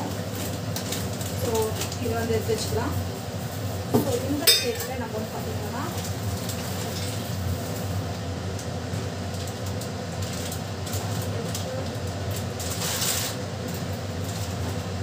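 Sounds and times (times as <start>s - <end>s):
gas burner hum: 0.0s - 15.0s
rustling scrape: 12.6s - 13.4s.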